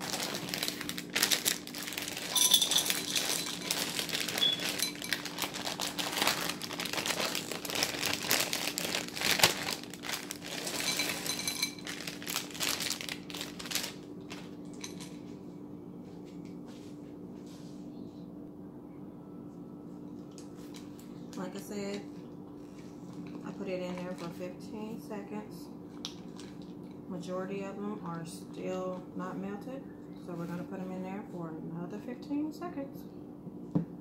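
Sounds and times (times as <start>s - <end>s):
plastic bag crinkling: 0.0s - 15.1s
faint steady hum: 0.0s - 34.0s.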